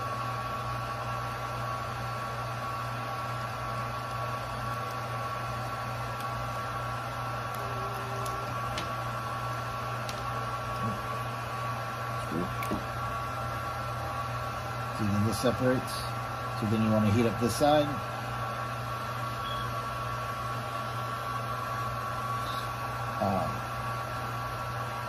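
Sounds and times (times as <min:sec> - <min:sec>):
electric blower motor whirring: 0:00.0 - 0:25.0.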